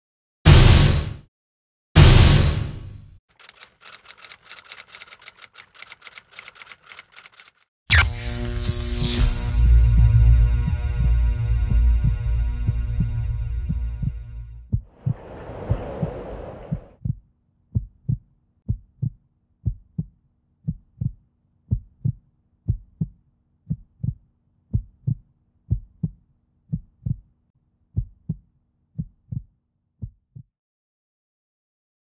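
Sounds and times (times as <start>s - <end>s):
heartbeat thumps: 10.9s - 20.1s, 20.7s - 27.2s.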